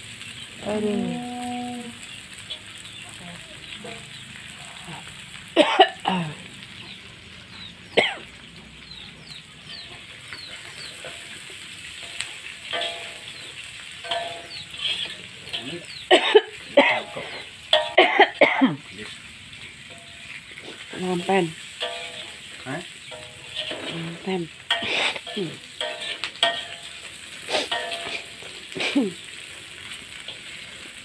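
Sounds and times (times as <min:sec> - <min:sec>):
food sizzling in a wok: 0:00.0 - 0:31.0
metal spatula scraping wok: 0:09.7 - 0:18.0, 0:19.6 - 0:31.0.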